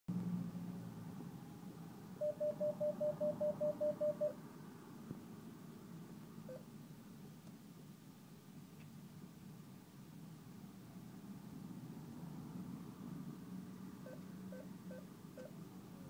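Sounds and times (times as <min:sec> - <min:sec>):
cash machine beeps: 0:02.2 - 0:04.4.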